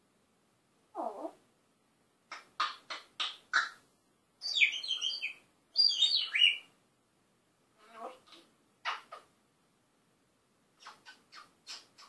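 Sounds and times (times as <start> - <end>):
parrot calling: 4.4 - 6.7.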